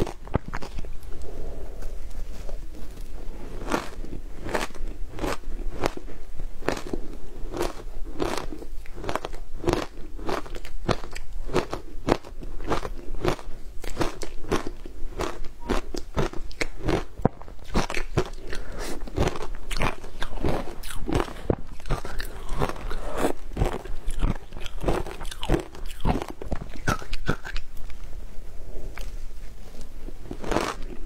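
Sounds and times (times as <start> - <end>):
crisp icy crunches of chewing: 6.6 - 27.7, 30.3 - 31.0.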